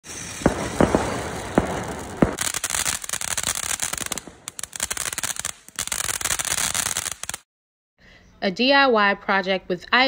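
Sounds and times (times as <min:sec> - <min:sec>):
fireworks hissing: 0:00.0 - 0:07.4
sparks crackling: 0:00.0 - 0:07.5.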